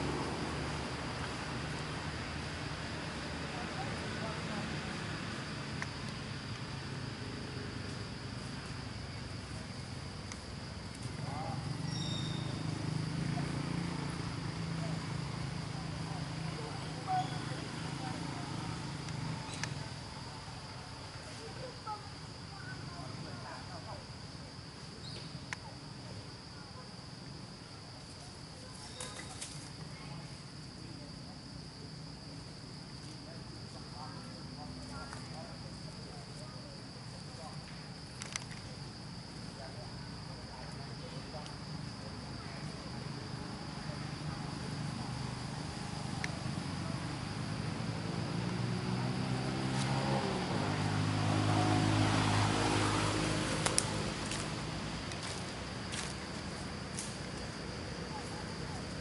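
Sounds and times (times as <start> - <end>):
high-pitched insect drone: 3.9 - 59.0
vehicle engine running: 42.6 - 59.0.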